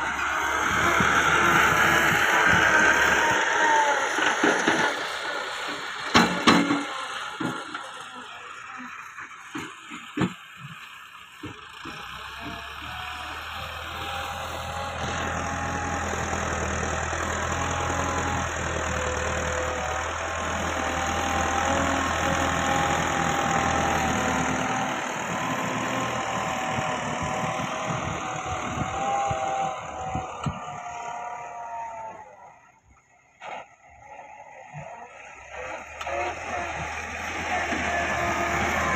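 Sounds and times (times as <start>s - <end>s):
tractor diesel engine under load: 0.0s - 38.9s
whine over engine: 26.7s - 33.1s.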